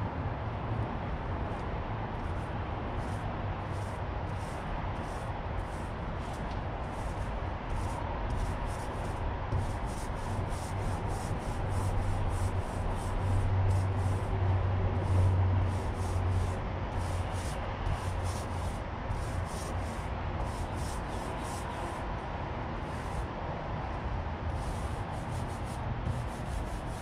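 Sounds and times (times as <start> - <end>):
paint roller rubbing on metal: 3.0 - 14.3, 15.0 - 22.0, 22.8 - 23.3, 24.5 - 27.0.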